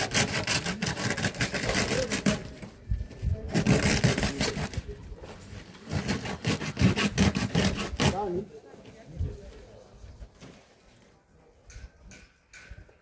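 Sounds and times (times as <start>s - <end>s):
hand tool scraping stone: 0.0s - 2.6s, 3.4s - 4.9s, 5.8s - 8.4s.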